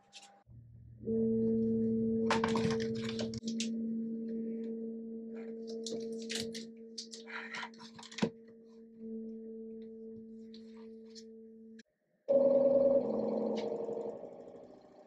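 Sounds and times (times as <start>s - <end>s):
three-d printer electric hum: 12.3s - 15.0s.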